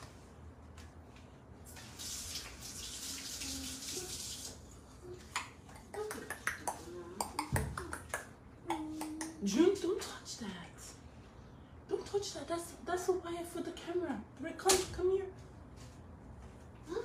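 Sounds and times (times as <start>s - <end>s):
sink tap running water: 1.7s - 4.7s.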